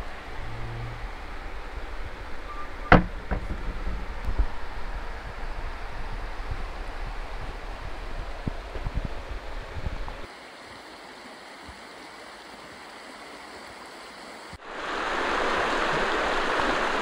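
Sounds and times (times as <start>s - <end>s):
wind buffeting microphone: 0.0s - 10.3s
river rushing over rocks: 0.0s - 17.0s.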